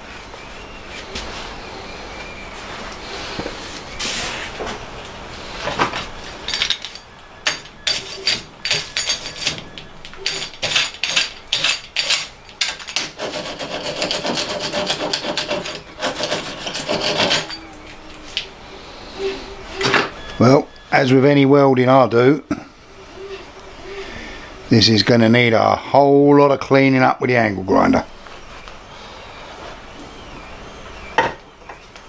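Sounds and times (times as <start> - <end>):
wire brush scrubbing metal: 7.5 - 17.8.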